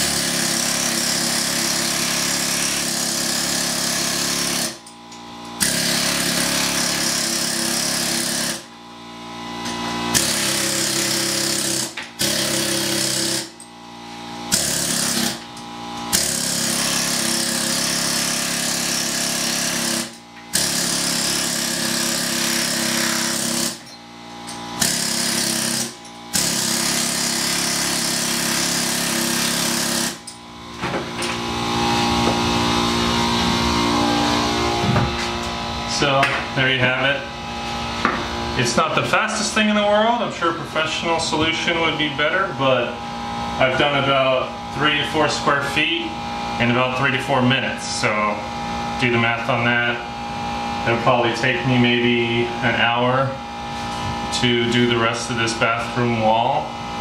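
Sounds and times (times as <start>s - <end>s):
air hammer chiselling concrete: 0.0s - 4.9s, 5.5s - 8.7s, 10.1s - 13.6s, 14.4s - 30.4s.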